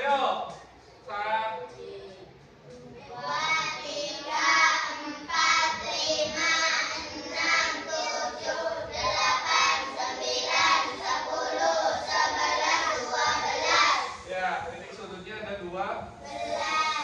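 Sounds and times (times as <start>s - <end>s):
children counting aloud in chorus: 3.0s - 14.2s, 16.2s - 17.0s.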